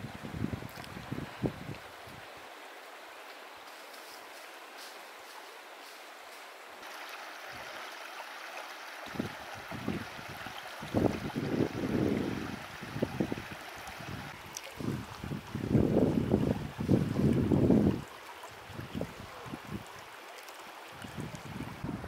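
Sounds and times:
wind buffeting microphone: 0.0 - 2.2, 9.1 - 19.9, 21.0 - 22.0
creek flowing: 0.0 - 22.0.

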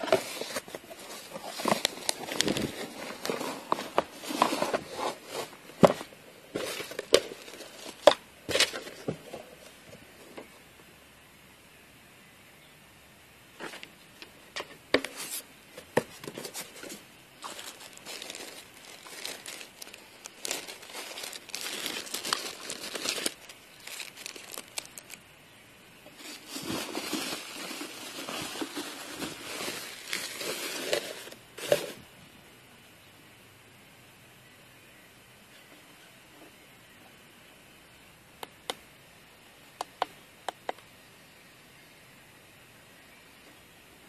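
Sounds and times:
packaging crinkling and rustling: 0.0 - 10.0, 15.0 - 25.2, 26.1 - 32.0.

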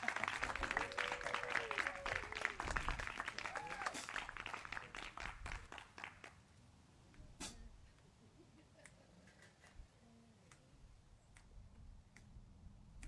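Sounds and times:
audience clapping: 0.0 - 6.4.

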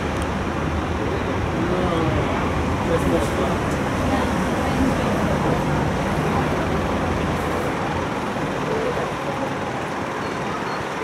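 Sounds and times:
tram rumble and hiss: 0.0 - 11.0.

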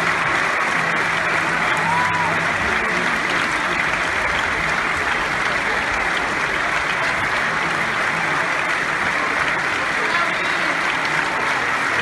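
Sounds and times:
large audience applauding: 0.0 - 12.0.

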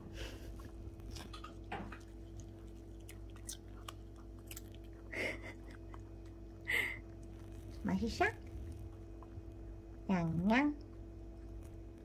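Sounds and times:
dog crunching carrot: 0.6 - 6.5.

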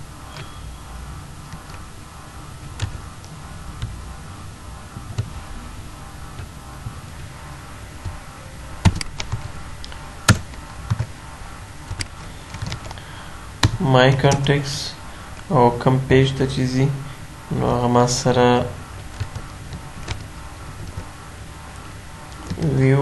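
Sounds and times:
low steady hum: 0.0 - 23.0
computer keys and mouse clicking: 2.7 - 4.0, 8.8 - 11.1, 19.0 - 21.1, 22.3 - 22.8.

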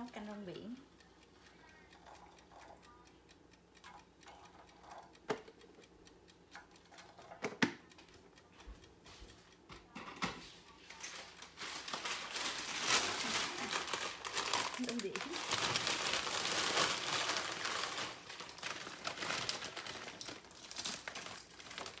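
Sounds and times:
kitchen things clicking and knocking: 6.6 - 7.9, 9.6 - 22.0
plastic bag rustling: 11.6 - 22.0.

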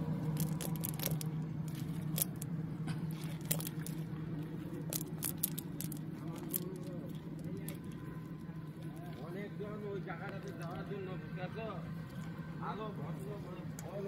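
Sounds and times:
low hum: 0.0 - 10.1
wet fishing net rustling: 0.2 - 4.1, 4.7 - 7.9.

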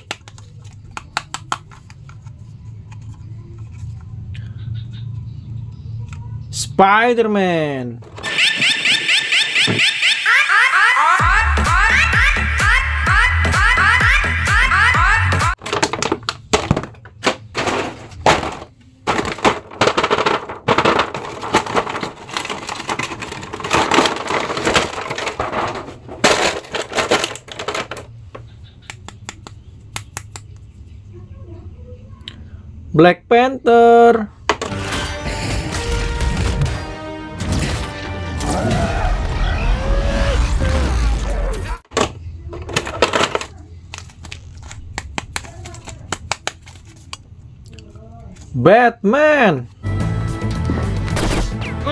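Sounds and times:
film music with heavy bass: 10.3 - 15.6, 34.7 - 41.8, 49.8 - 51.9
plastic packaging crackling: 18.2 - 28.1.

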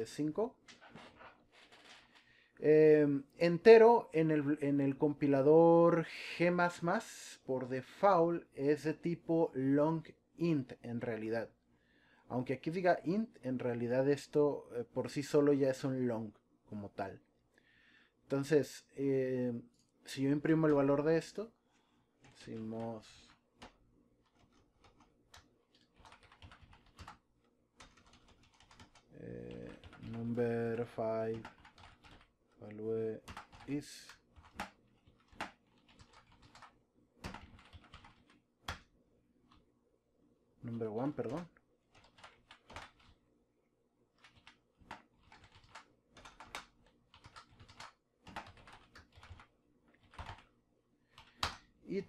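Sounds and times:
man talking: 0.0 - 0.6, 2.6 - 11.5, 18.3 - 21.5, 22.4 - 23.3, 29.1 - 31.5, 32.6 - 34.2, 40.6 - 41.5
computer keyboard typing: 22.2 - 27.2, 27.8 - 30.6, 31.2 - 32.3, 33.2 - 38.9, 41.2 - 43.2, 44.2 - 50.5, 51.1 - 51.6.

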